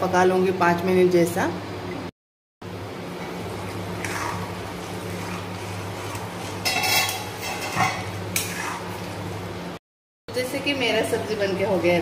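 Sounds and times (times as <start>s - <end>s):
metal ladle scraping a pan: 4.0s - 9.1s.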